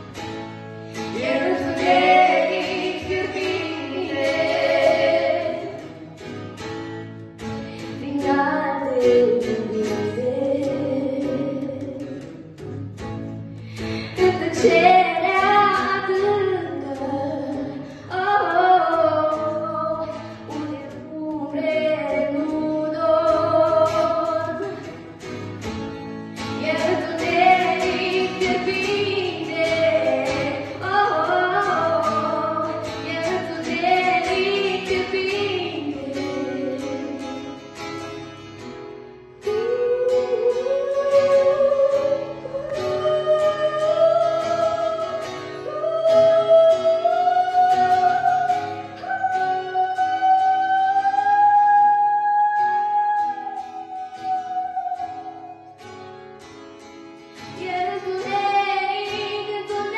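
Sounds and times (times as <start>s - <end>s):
acoustic guitar: 0.0s - 59.9s
girl singing: 1.1s - 6.0s, 7.8s - 12.4s, 14.0s - 25.0s, 26.5s - 37.6s, 39.4s - 55.9s, 57.4s - 59.9s.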